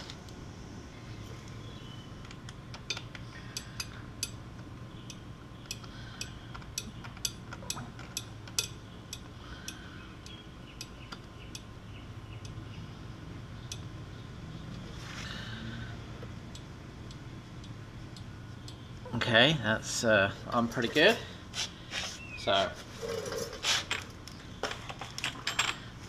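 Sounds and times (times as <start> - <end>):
light metallic clicks and clinks: 5.1 - 9.8.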